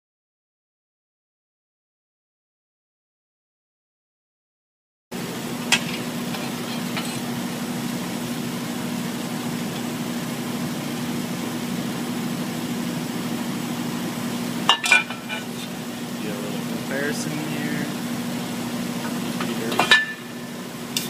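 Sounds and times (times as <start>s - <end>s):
workshop machinery humming: 5.1s - 21.0s.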